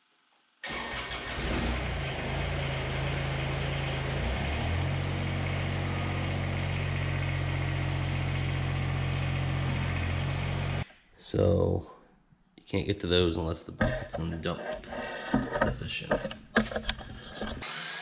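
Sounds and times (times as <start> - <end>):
tractor diesel engine running: 0.6 - 10.8.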